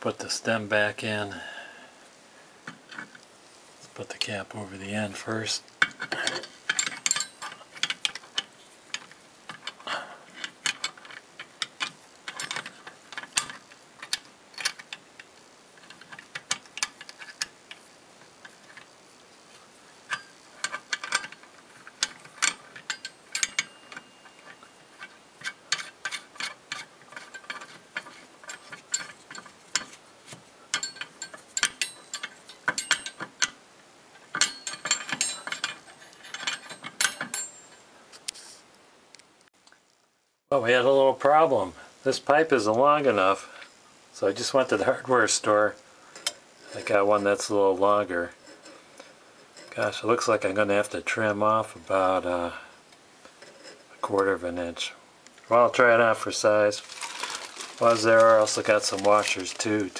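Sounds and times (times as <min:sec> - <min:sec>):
plastic and metal parts clicking: 0:56.8 - 0:59.9.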